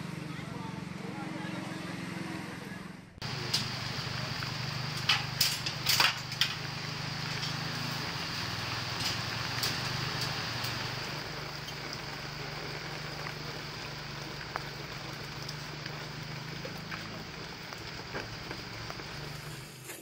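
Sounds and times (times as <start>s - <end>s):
constant hiss: 3.2s - 20.0s
machine humming: 3.2s - 20.0s
debris knocking and clattering: 3.4s - 11.0s.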